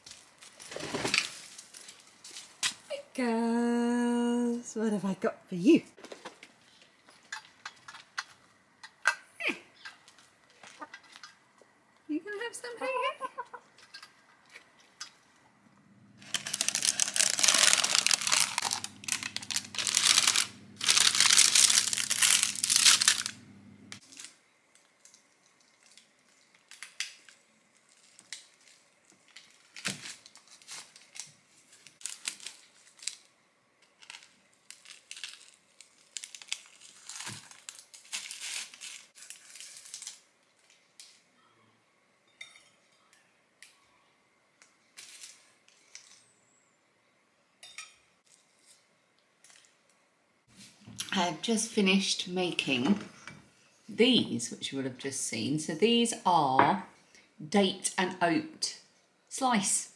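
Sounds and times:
baking paper crinkling: 0:16.2 - 0:41.2, 0:44.9 - 0:46.2.

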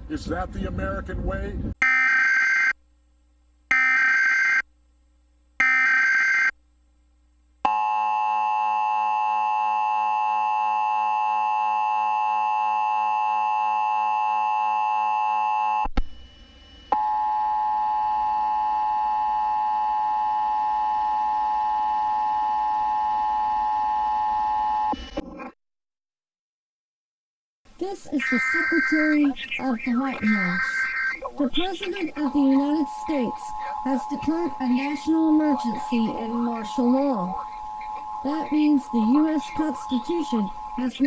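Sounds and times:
harsh data bursts: 0:27.8 - 0:41.0
two-tone attention signal: 0:28.2 - 0:41.0.

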